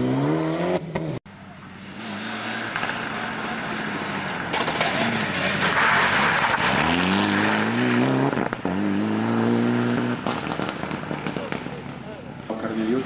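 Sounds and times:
rally car engine revving: 0.0 - 1.2, 1.8 - 12.0
tyres sliding on grit: 4.6 - 7.5
engine crackles: 9.9 - 12.7.

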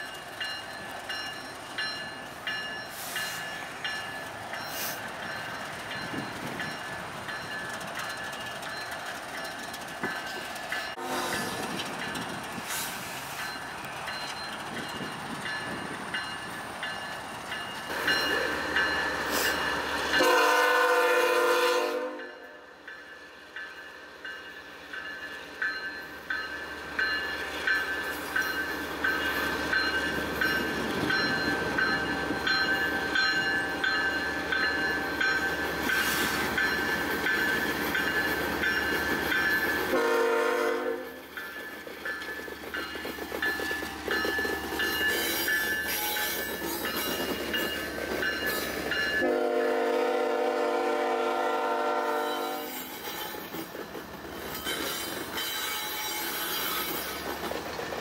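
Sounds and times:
train horn blasts: 11.0 - 11.6, 20.1 - 22.7, 39.9 - 41.2, 49.2 - 53.4.

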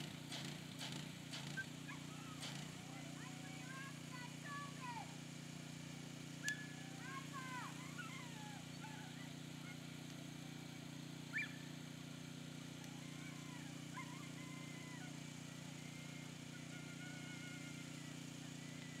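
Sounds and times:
motor humming: 0.0 - 19.0
faint chirping calls: 11.3 - 11.7.

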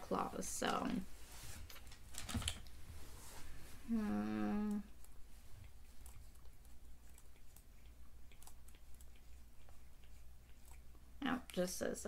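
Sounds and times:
person humming: 3.9 - 4.9.

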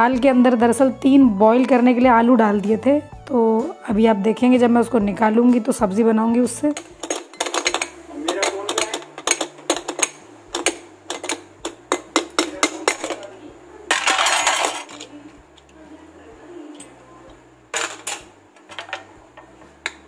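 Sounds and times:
metal utensils clinking: 6.7 - 15.4, 17.7 - 20.0
metal lid clanking: 6.8 - 13.3, 13.9 - 15.1, 17.7 - 20.0.

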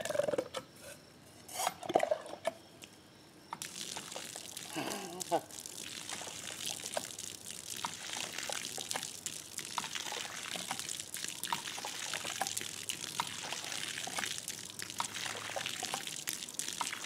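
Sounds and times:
water dripping: 2.8 - 17.0
water splattering on ground: 3.6 - 17.0.

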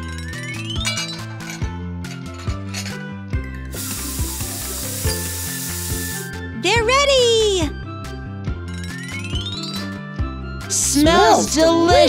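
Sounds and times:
cartoon background music: 0.0 - 12.0.

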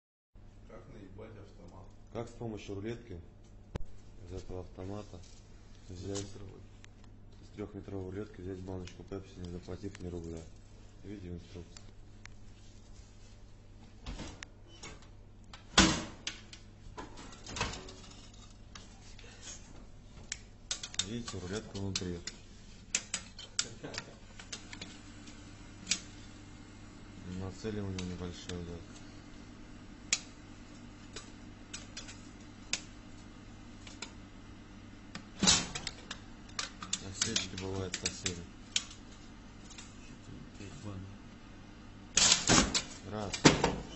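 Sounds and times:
steady low hum: 0.4 - 43.9
metal tape clicking and tapping: 20.2 - 24.9.

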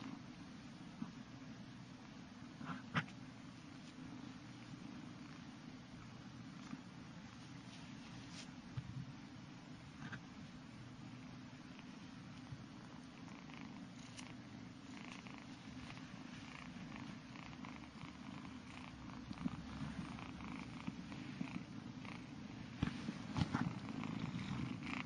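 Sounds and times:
kitten purring: 2.4 - 5.7, 11.1 - 25.0.

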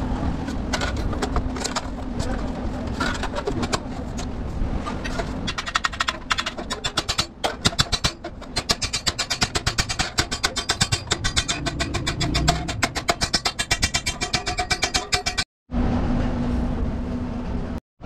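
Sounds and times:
low rumble: 11.0 - 13.2.

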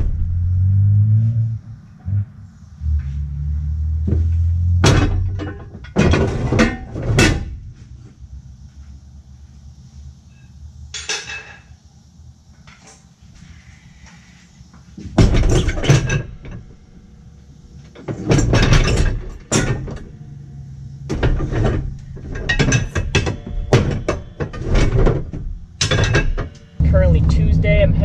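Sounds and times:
knocks and clunks of handling: 4.0 - 7.6.

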